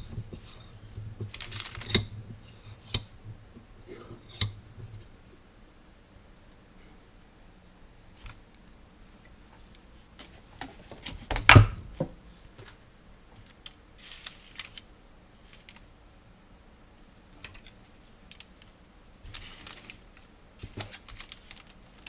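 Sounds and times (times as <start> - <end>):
tools clicking and knocking: 0.0 - 3.1, 4.3 - 4.6
paper crinkle: 13.4 - 15.9, 17.4 - 22.0.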